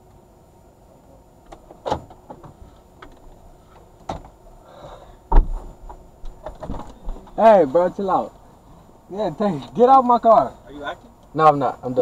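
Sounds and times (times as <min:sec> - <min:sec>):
clicks and knocks in car cabin: 0:01.5 - 0:03.4, 0:04.0 - 0:04.4, 0:05.3 - 0:07.4.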